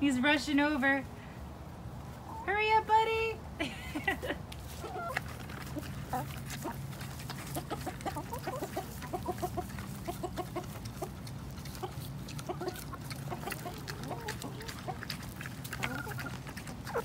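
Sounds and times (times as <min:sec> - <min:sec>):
hens clucking: 0:03.9 - 0:17.0.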